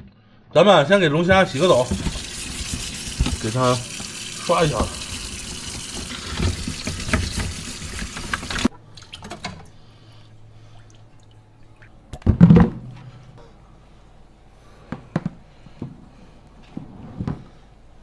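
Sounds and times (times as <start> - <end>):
scrub brush scraping shell: 1.3 - 8.7
tap water running into sink: 1.3 - 9.5.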